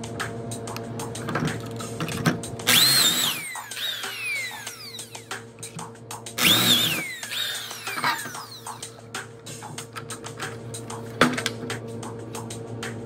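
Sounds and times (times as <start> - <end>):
electric drill boring into wood: 2.7 - 5.2, 6.4 - 8.8.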